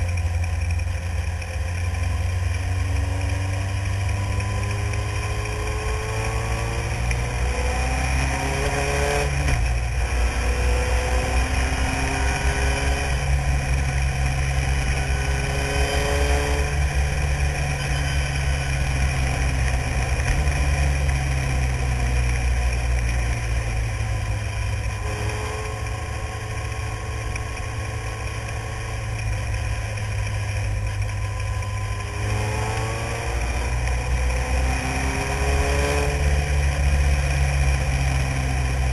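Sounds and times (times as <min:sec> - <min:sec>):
racing car engine revving: 0:02.8 - 0:23.6, 0:24.8 - 0:38.9
low rumble: 0:09.3 - 0:35.4.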